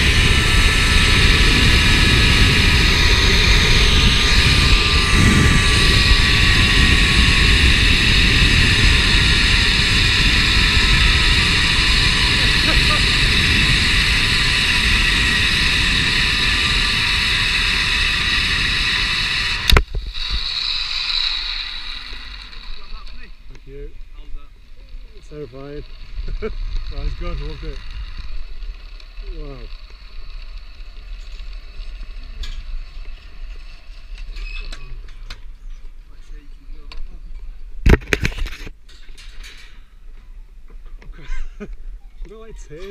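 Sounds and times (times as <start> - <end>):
wind rushing over microphone: 0.0 - 20.4, 25.2 - 29.7
pulleys whirring on cable: 0.0 - 23.7, 24.8 - 35.4, 37.9 - 40.0.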